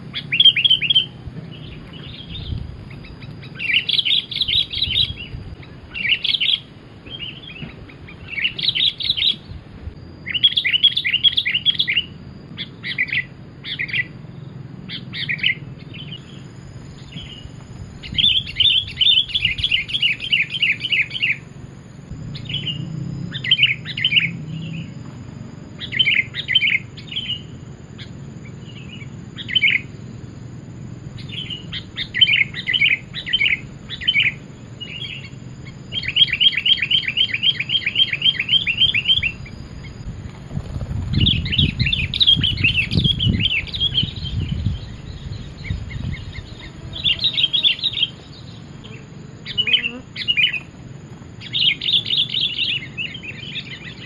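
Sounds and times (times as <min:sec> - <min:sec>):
bird chattering calls: 0:00.0 - 0:09.5, 0:31.2 - 0:50.8.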